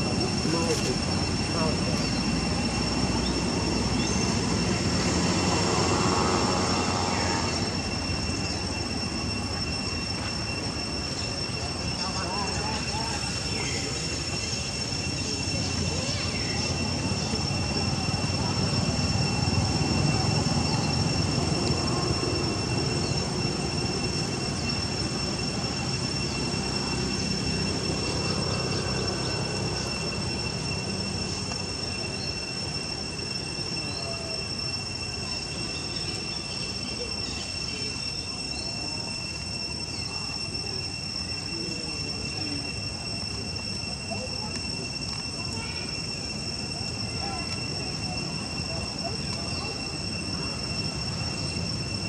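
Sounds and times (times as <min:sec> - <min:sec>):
insects droning: 0:00.0 - 0:52.0.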